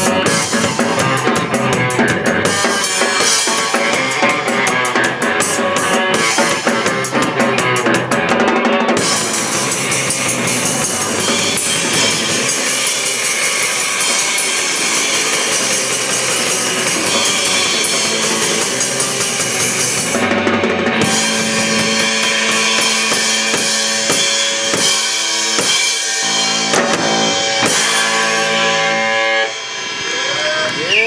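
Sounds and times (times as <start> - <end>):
cymbals crashing: 0.0 - 7.4, 9.0 - 20.3, 21.0 - 31.0
drum hits: 0.0 - 30.9
rock band playing: 0.0 - 31.0.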